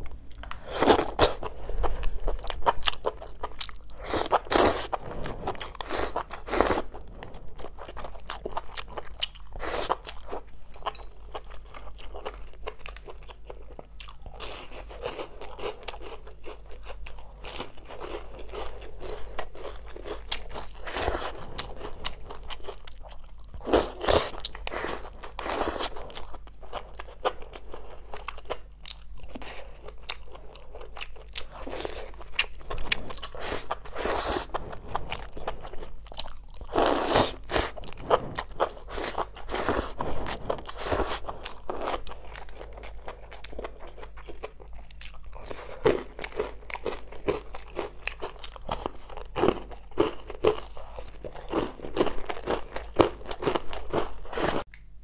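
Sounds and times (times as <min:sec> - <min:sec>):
person chewing crispy food: 0:00.0 - 0:54.9.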